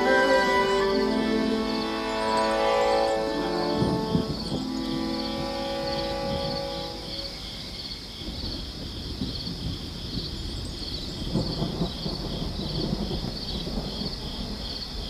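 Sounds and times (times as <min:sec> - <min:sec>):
held music chord: 0:00.0 - 0:08.1
crickets chirping: 0:00.0 - 0:15.0
night ambience: 0:00.0 - 0:15.0
distant thunder rumble: 0:03.4 - 0:15.0.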